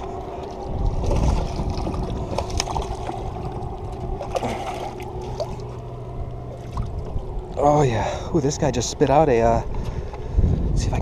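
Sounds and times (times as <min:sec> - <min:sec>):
water lapping against rocks: 0:00.0 - 0:08.0
steady low rumble: 0:00.0 - 0:11.0.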